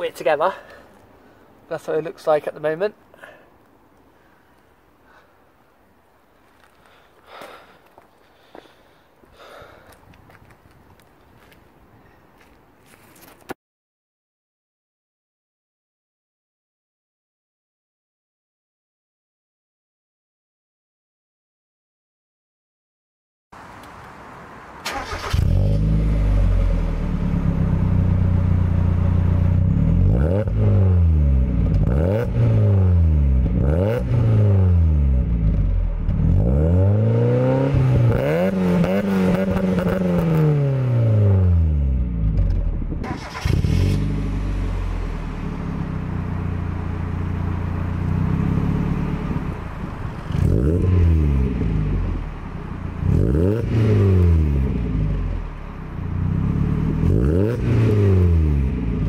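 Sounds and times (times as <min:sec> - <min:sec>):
car engine idling and revving: 0:23.6 - 0:59.0.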